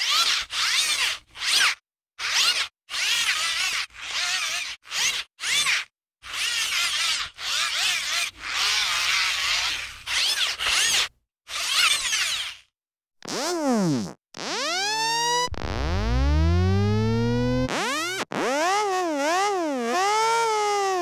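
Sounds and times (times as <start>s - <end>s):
hand-cranked mechanical whirring: 13.2s - 13.8s, 14.4s - 21.0s.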